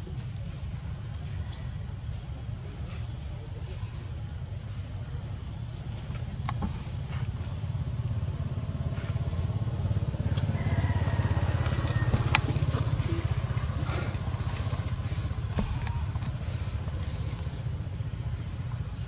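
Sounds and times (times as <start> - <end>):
vehicle engine rumbling: 5.8 - 19.0.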